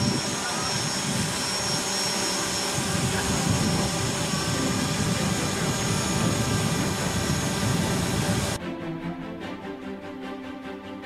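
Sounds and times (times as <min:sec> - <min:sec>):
drone propellers whining: 0:00.0 - 0:08.6.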